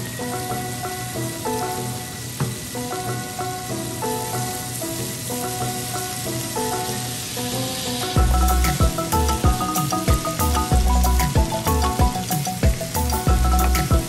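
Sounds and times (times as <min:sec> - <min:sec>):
background music melody: 0:00.0 - 0:14.0
food sizzling in frying pan: 0:00.0 - 0:14.0.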